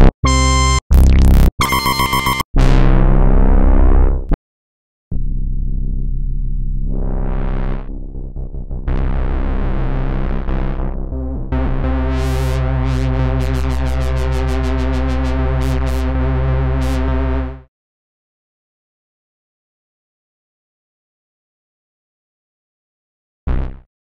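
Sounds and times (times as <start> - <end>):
sustained synth bass notes: 0.0 - 4.4, 5.1 - 17.7, 23.5 - 23.9.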